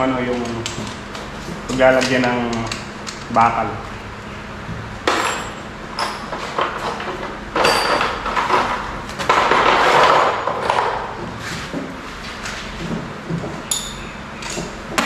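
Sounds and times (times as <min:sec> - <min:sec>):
building materials knocking and clattering: 0:06.3 - 0:12.0.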